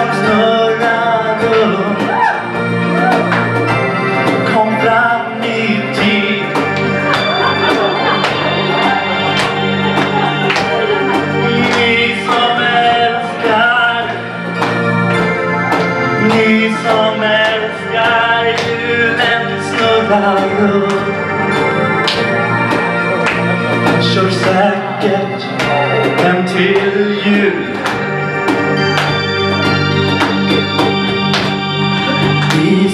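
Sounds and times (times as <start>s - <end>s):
person singing into microphone: 0.0s - 3.3s, 4.3s - 8.2s, 9.9s - 14.6s, 16.2s - 21.4s, 23.8s - 28.0s, 32.1s - 32.9s
electric organ chords: 0.0s - 32.9s
steady drum beat: 0.0s - 32.9s.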